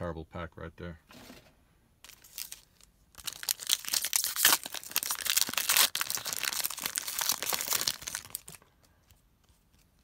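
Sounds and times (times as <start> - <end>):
foil wrapper crinkling and tearing: 2.1 - 8.6.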